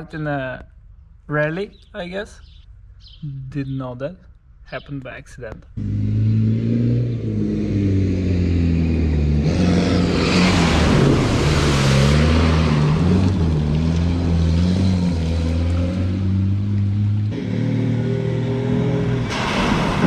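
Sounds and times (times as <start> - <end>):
off-road engine revving: 4.7 - 20.0.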